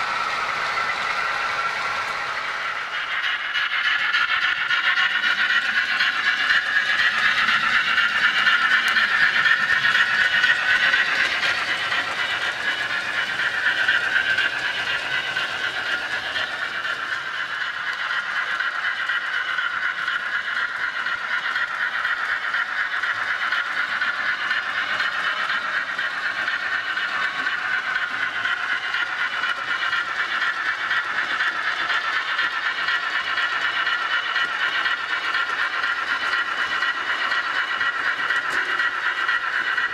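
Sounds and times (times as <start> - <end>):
model train running on track: 0.0 - 39.9.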